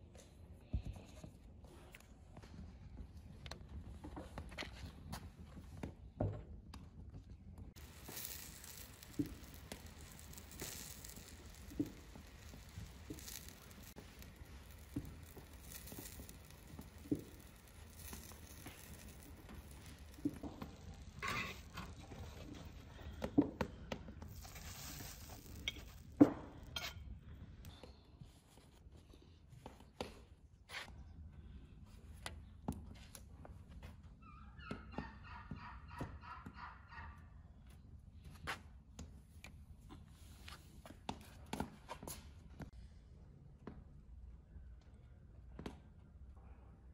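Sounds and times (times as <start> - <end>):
food sizzling on hot pan: 7.8 - 23.0, 24.2 - 27.0.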